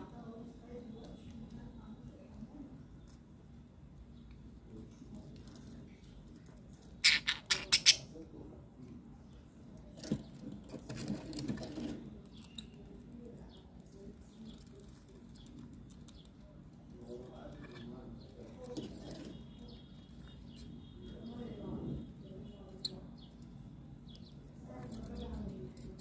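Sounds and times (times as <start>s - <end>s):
soft bird twittering: 6.8s - 8.2s
budgerigar harsh chirps: 7.0s - 8.1s.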